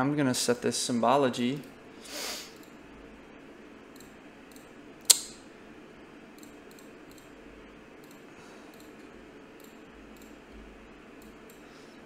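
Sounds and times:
computer mouse clicking: 0:06.4 - 0:07.3, 0:08.0 - 0:10.4, 0:11.2 - 0:11.6.

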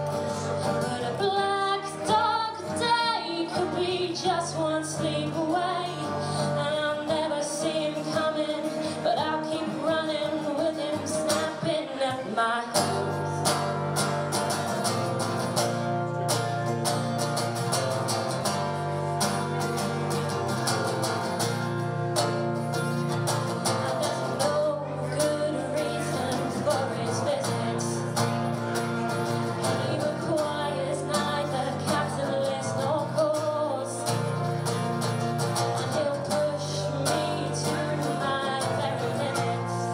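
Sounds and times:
woman singing: 0:00.0 - 0:13.8, 0:23.6 - 0:28.5, 0:29.4 - 0:39.9
strummed acoustic guitar: 0:00.0 - 0:39.9.

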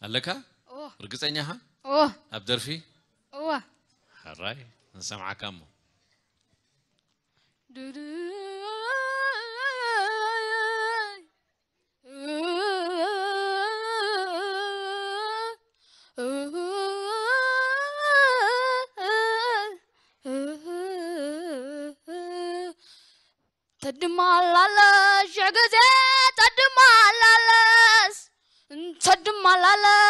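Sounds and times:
boy singing: 0:07.7 - 0:11.3, 0:12.1 - 0:15.6, 0:16.2 - 0:22.8, 0:23.8 - 0:30.0.

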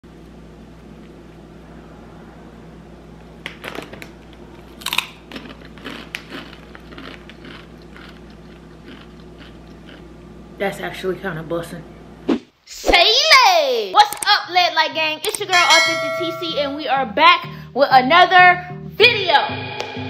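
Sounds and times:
crunchy chip bites: 0:03.5 - 0:10.1
crunchy chewing: 0:03.6 - 0:10.2.

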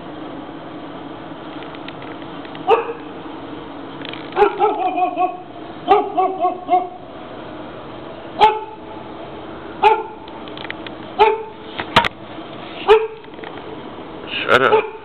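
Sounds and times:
dog barking: 0:02.7 - 0:03.0, 0:04.4 - 0:07.0, 0:08.4 - 0:08.8, 0:09.8 - 0:10.2, 0:11.2 - 0:11.5, 0:12.8 - 0:13.2, 0:14.6 - 0:15.0.

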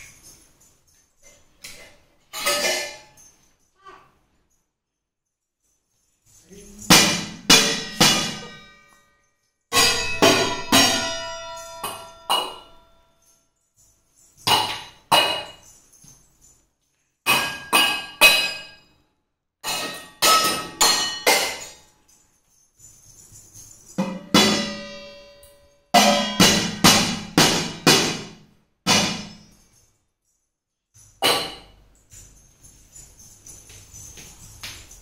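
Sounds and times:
metal pots banged like drum: 0:01.7 - 0:03.2, 0:06.8 - 0:08.8, 0:09.7 - 0:12.8, 0:14.5 - 0:15.6, 0:17.3 - 0:18.8, 0:19.6 - 0:21.8, 0:24.0 - 0:29.4, 0:31.2 - 0:31.8.

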